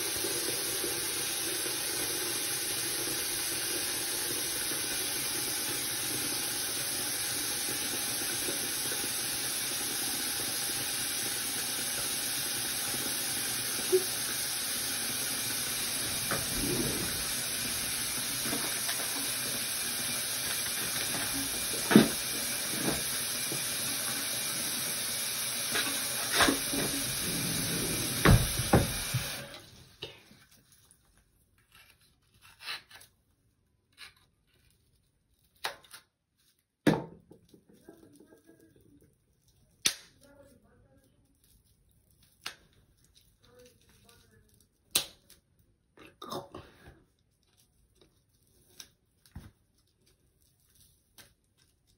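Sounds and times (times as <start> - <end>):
tap running into sink: 13.5 - 29.6.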